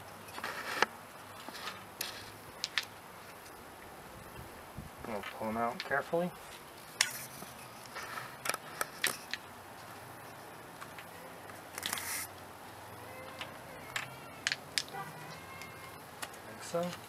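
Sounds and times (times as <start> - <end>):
metal scrape: 0.2 - 2.4, 6.9 - 9.3, 11.8 - 12.3.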